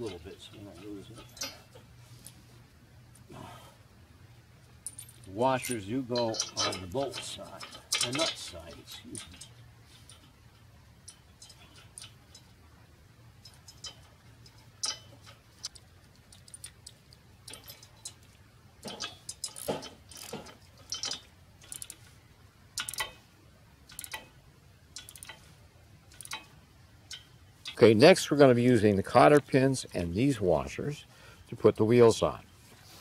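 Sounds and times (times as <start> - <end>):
metallic clicks of wrench on bolt: 4.8 - 10.3, 13.4 - 22.1, 22.8 - 23.2, 23.9 - 24.4, 25.0 - 25.5, 26.1 - 27.8.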